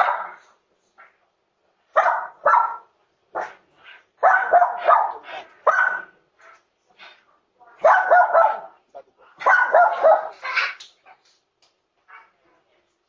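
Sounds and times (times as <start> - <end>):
dog barking: 0.0 - 0.5, 1.9 - 3.6, 4.2 - 6.2, 7.8 - 8.8, 9.4 - 10.6.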